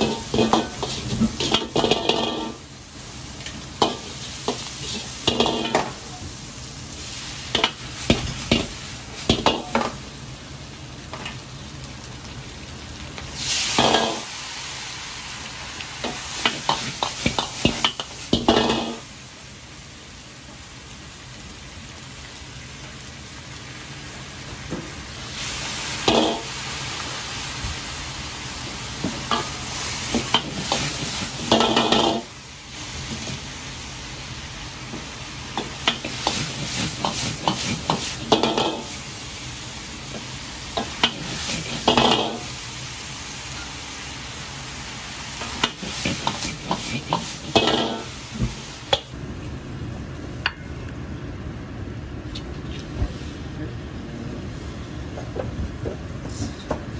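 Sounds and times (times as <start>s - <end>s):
food sizzling in a wok: 0.0s - 56.9s.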